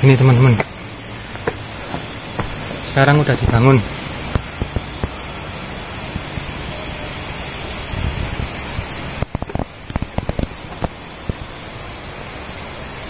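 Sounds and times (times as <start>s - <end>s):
rushing outdoor noise: 0.0s - 13.0s
sharp knocks: 0.6s - 2.7s.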